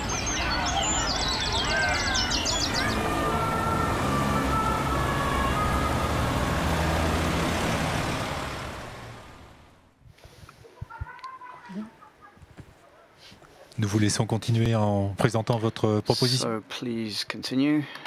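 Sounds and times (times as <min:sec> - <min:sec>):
birds chirping and trilling: 0:00.0 - 0:07.0
distant siren: 0:00.0 - 0:09.4
city traffic noise: 0:00.0 - 0:10.0.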